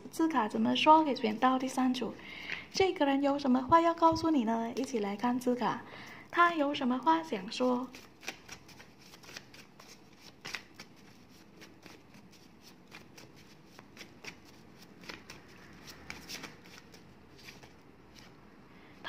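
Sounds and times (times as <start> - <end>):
paper cards being shuffled: 7.5 - 18.4.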